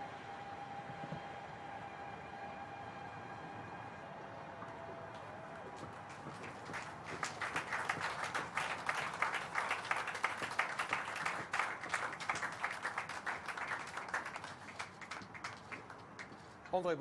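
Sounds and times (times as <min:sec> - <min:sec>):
crowd applauding: 0:04.6 - 0:16.7.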